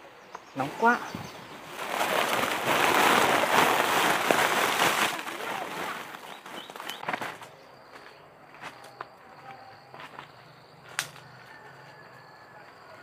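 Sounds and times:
dry rustling and crackling: 0:00.6 - 0:08.1.

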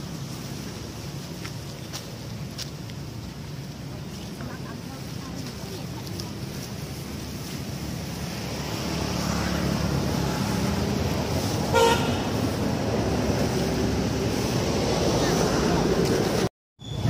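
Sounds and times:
motor vehicle running: 0:00.0 - 0:17.0
short horn toot: 0:11.7 - 0:12.4.

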